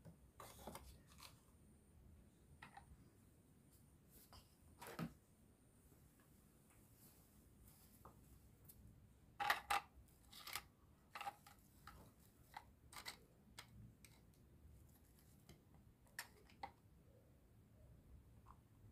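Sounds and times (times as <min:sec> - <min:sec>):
plastic toys knocking and clicking: 0:09.4 - 0:14.2.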